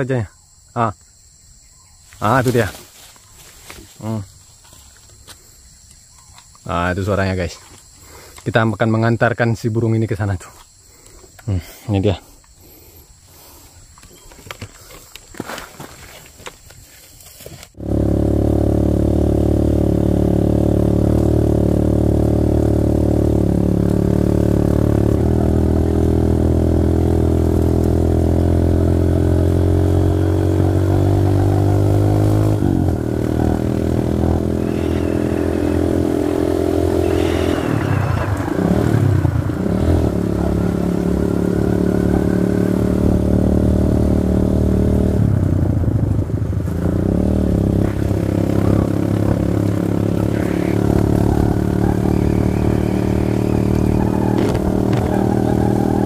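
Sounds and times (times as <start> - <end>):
motorcycle engine running: 17.8 - 56.0.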